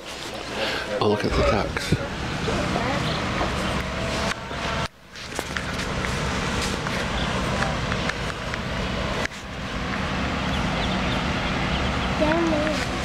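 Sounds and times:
low background rumble: 1.2 - 13.0
chicks peeping: 2.8 - 3.8, 10.0 - 13.0.

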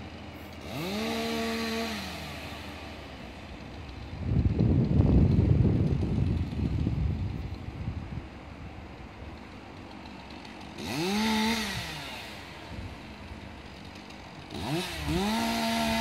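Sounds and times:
engine revving: 0.0 - 4.1, 10.0 - 16.0.

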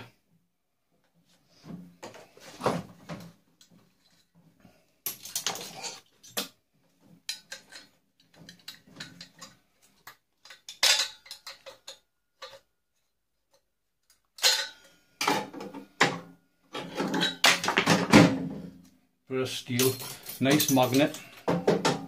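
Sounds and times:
metal parts clattering: 5.1 - 6.5, 7.3 - 12.6, 14.4 - 14.8, 19.7 - 21.5.

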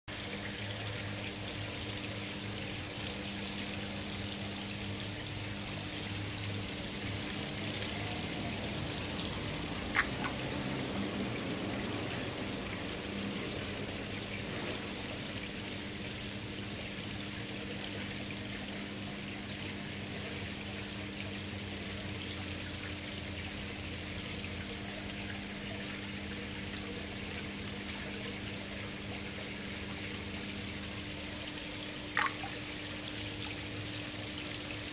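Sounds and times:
water trickling into pond: 0.1 - 34.9
low steady hum: 15.0 - 34.9.

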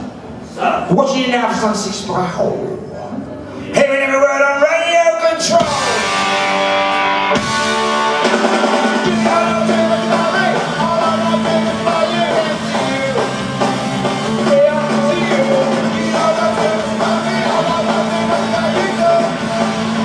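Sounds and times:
drum kit: 5.4 - 20.0
bass guitar: 5.5 - 20.0
electric guitar: 5.6 - 20.0.

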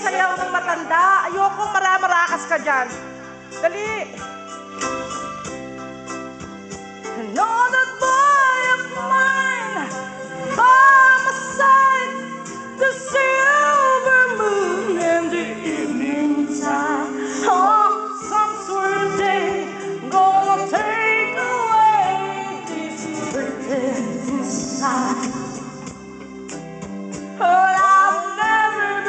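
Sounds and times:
recorded backing music: 0.0 - 29.0
person singing: 7.1 - 26.0, 27.4 - 29.0.

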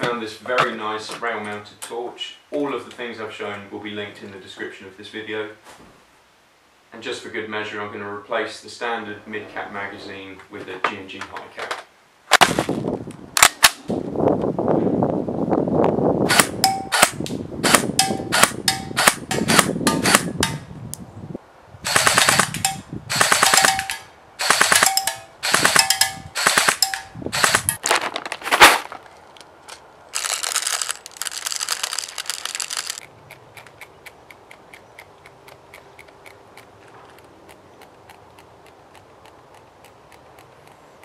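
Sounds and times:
airsoft rifle rapid-fire bursts: 16.3 - 20.4, 21.9 - 27.8
faint regular ticking: 30.2 - 41.0.

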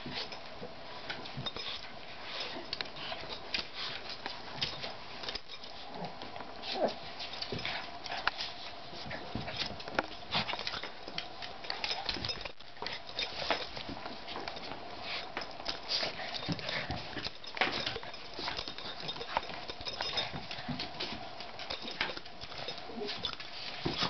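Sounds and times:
dogs scuffling: 0.0 - 24.0
dog claws clicking on floor: 7.2 - 24.0.

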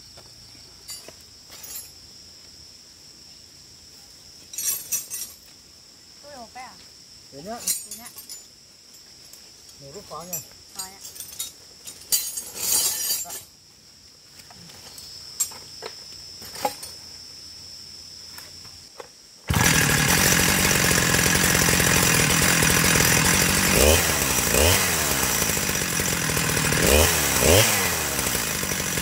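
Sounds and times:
chainsaw engine running and revving: 19.5 - 29.0.

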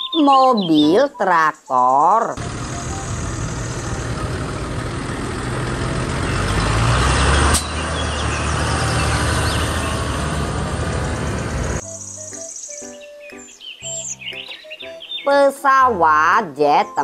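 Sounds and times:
tractor diesel engine running: 2.4 - 11.8.

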